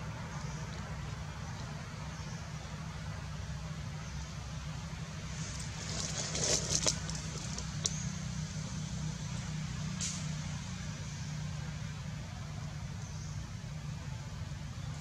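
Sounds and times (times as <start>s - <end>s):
low outdoor rumble: 0.0s - 15.0s
crackly rustling: 5.4s - 8.1s.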